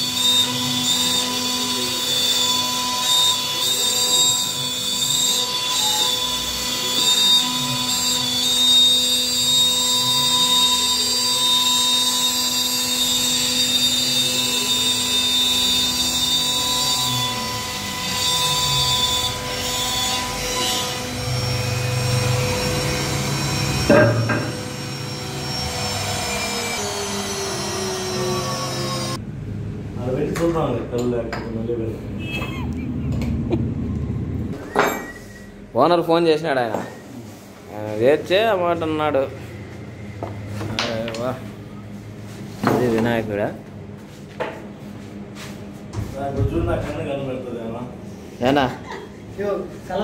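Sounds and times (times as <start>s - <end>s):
router spindle whine: 0.0s - 29.2s.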